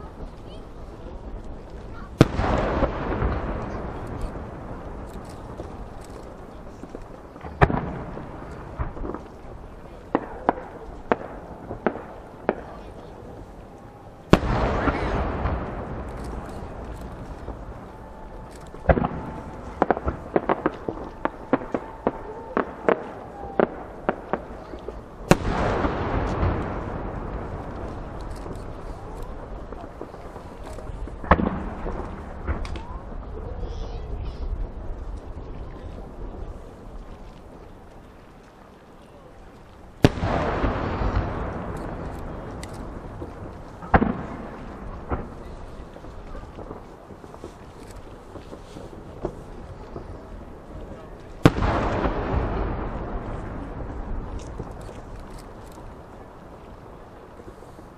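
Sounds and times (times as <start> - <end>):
firework cracks and pops: 0.0 - 57.9
long rolling echo: 0.0 - 57.9
loud firework shell burst: 2.0 - 6.4, 14.3 - 33.0, 40.0 - 45.4.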